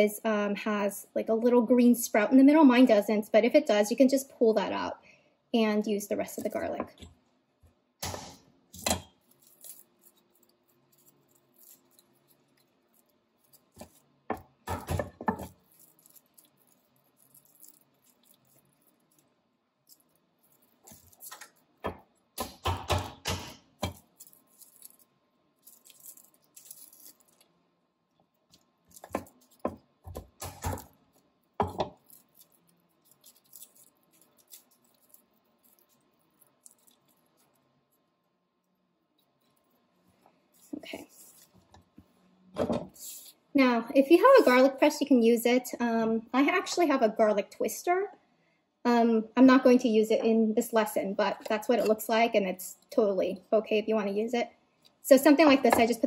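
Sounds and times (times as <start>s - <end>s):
garlic skins rustling: 9.2s - 14.3s, 15.2s - 21.8s, 23.8s - 27.6s, 28.4s - 38.0s, 39.2s - 42.0s
knife crushing garlic on board: 29.0s - 30.9s.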